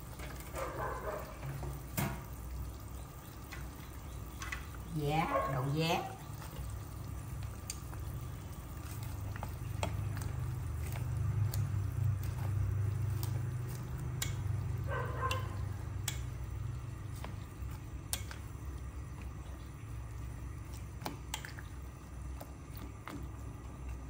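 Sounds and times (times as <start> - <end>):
steady low hum: 2.3 - 24.0
chopsticks stirring in a pot: 5.5 - 24.0
chopsticks clicking against metal pot: 14.1 - 14.5, 15.3 - 16.4, 18.1 - 18.4.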